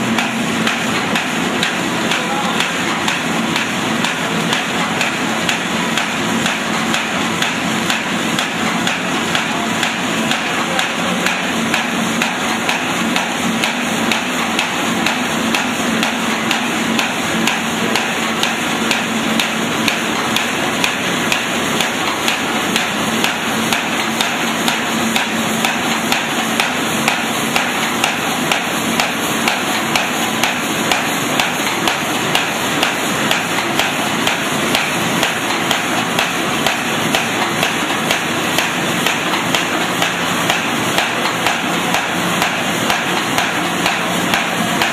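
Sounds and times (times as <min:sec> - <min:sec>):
machine clattering knocks: 0:00.1 - 0:44.9.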